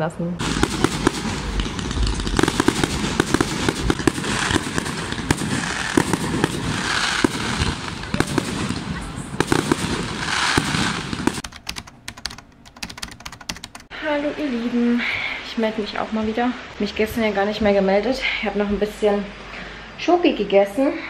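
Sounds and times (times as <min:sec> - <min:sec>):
fireworks bangs: 0:00.4 - 0:11.4
fireworks crackling: 0:00.4 - 0:12.1.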